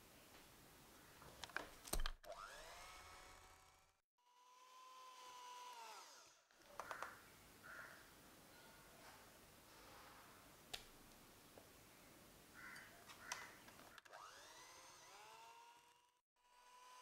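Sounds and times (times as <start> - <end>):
electric hand mixer whining: 2.3 - 6.4, 14.0 - 17.0.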